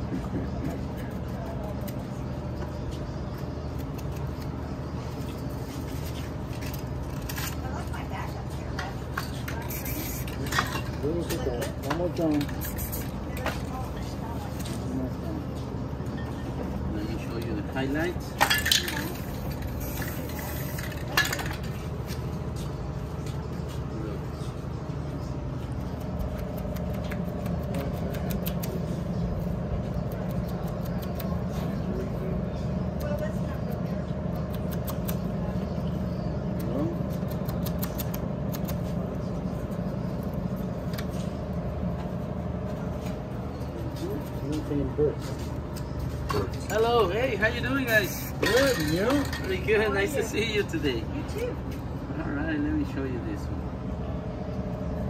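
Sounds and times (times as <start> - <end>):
low engine rumble: 0.0 - 55.0
low mechanical hum: 0.0 - 55.0
spray paint hissing: 9.5 - 10.4, 12.4 - 13.3, 19.1 - 21.2.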